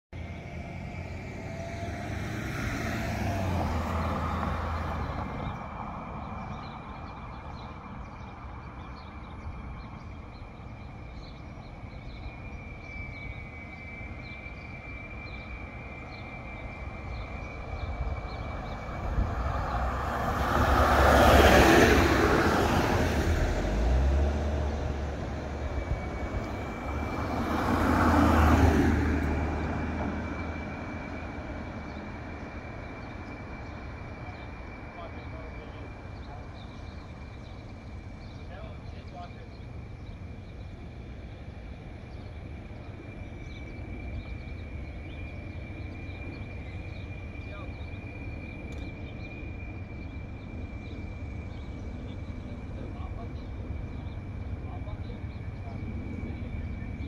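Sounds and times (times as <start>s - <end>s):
cars passing: 0.2s - 57.0s
faint steady high tone: 9.5s - 19.2s.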